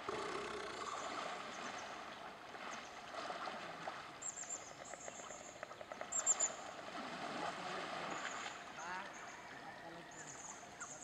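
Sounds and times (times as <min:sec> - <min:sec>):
water sloshing and lapping: 0:00.0 - 0:11.0
small splashes: 0:00.9 - 0:04.2.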